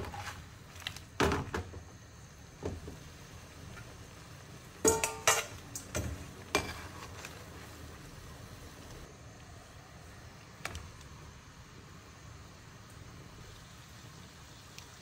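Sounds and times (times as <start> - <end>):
oil sizzling: 0.0 - 15.0
spoon scraping frying pan: 4.8 - 7.4.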